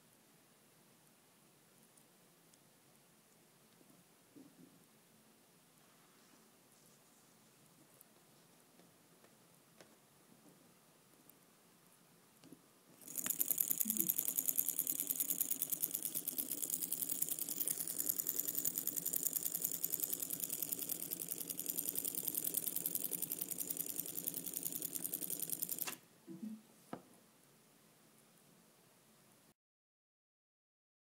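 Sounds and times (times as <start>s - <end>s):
model engine clattering: 13.0s - 26.0s.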